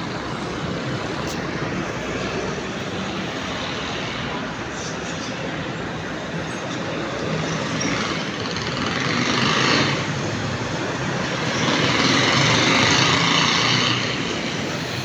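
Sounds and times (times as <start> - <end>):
drilling rig running: 7.3 - 15.0.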